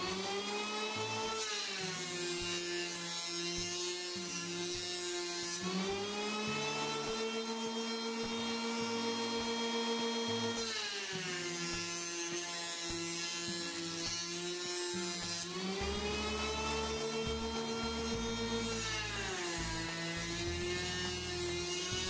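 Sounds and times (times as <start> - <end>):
electric planer whining: 0.0 - 22.0.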